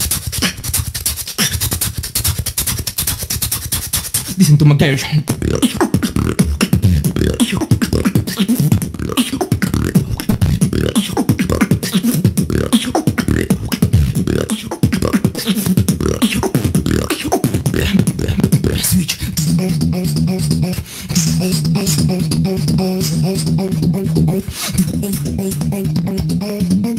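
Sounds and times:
person beatboxing: 0.0 - 26.9.

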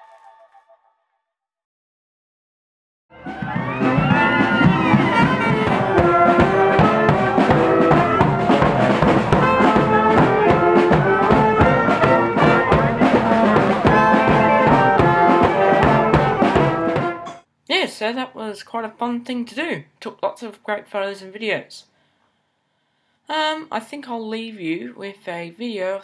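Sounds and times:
drum and cymbal beat: 3.2 - 17.3
saxophones playing in harmony: 3.2 - 17.3.

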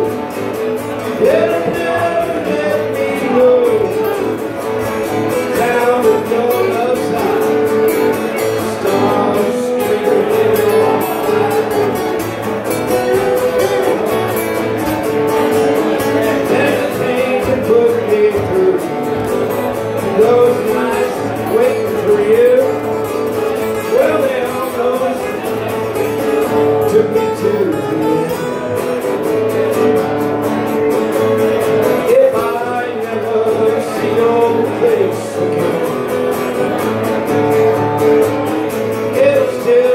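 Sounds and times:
strummed acoustic guitar: 0.0 - 39.9
man singing through a pa: 1.0 - 4.6, 5.2 - 12.1, 12.9 - 14.3, 16.0 - 22.9, 23.6 - 28.6, 31.8 - 36.8, 39.0 - 39.9.

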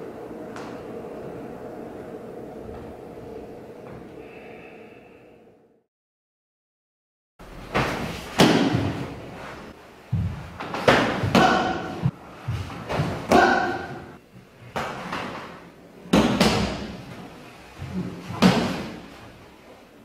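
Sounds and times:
feet stamping on wooden floor: 10.1 - 13.2.

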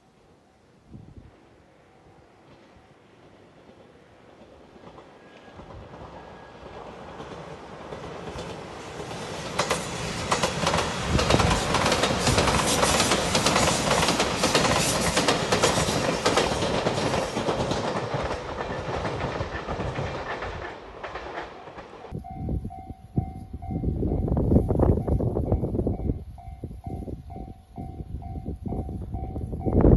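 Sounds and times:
train wheels clattering over rail joints: 3.7 - 22.1
level-crossing warning bell: 22.1 - 29.9.

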